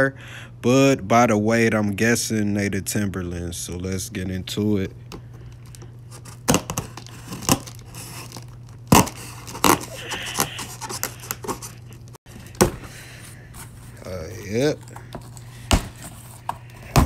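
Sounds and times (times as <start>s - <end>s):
steady low hum: 0.0s - 17.0s
knife scraping cardboard: 6.1s - 11.9s
knife cutting packing tape: 6.1s - 12.7s.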